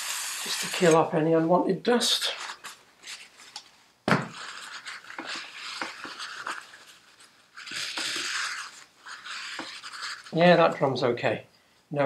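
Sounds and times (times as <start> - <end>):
rag rubbing on metal: 4.3 - 10.5.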